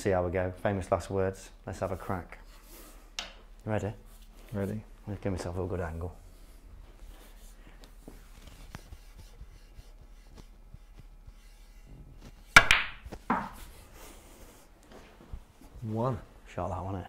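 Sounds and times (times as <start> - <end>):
snooker balls clicking: 12.6 - 13.6.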